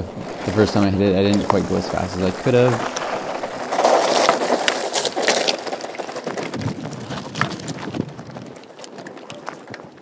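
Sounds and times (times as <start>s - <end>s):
bike tyres crunching on gravel: 0.0s - 10.0s.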